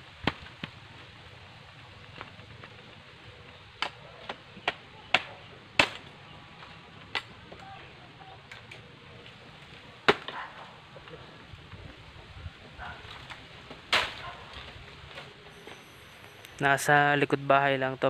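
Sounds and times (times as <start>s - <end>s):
knife hacking bamboo: 4.6s - 6.0s.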